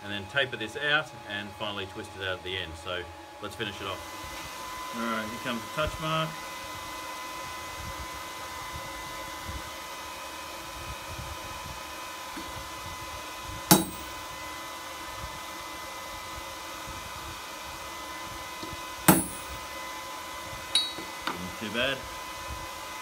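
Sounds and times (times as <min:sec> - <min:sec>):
steady mechanical hum: 0:00.0 - 0:23.0
hammer striking metal stamp: 0:13.7 - 0:14.1, 0:19.1 - 0:19.5, 0:20.8 - 0:21.4.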